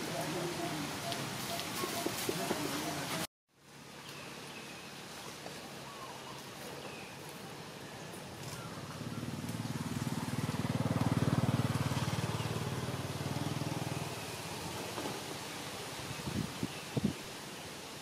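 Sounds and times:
vehicle engine passing by: 7.8 - 15.5.

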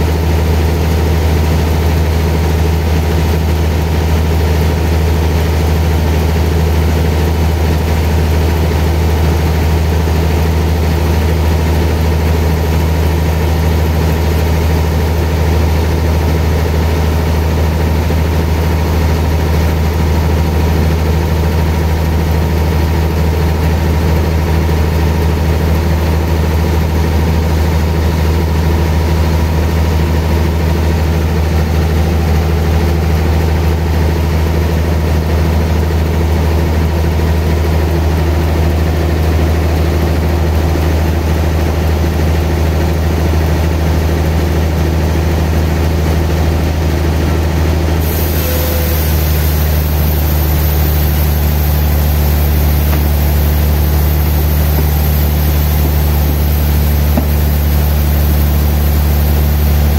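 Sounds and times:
sawmill machinery low hum: 45.8 - 59.9.

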